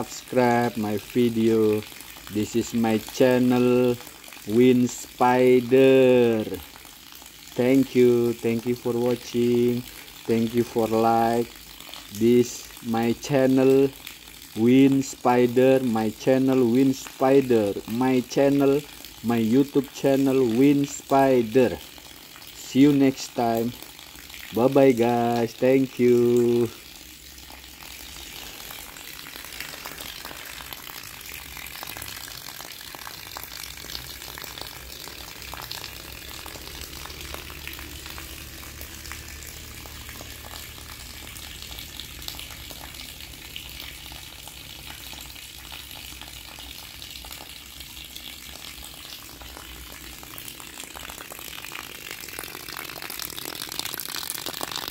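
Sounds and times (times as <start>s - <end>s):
rain on wet ground and puddles: 26.7s - 54.9s.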